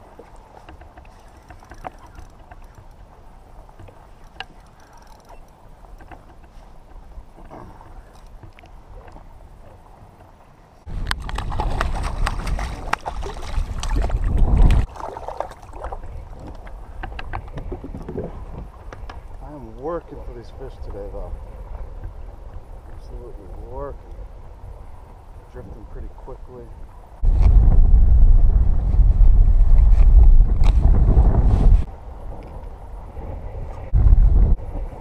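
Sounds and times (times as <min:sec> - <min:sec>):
water lapping against a kayak: 0:00.0 - 0:27.5
fish splashing: 0:11.2 - 0:16.2.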